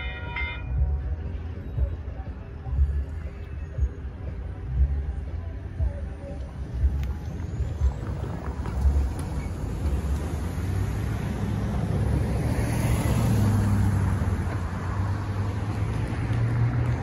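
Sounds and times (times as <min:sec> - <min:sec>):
cars driving over railroad crossing: 0:00.0 - 0:01.9
low traffic rumble: 0:00.0 - 0:17.0.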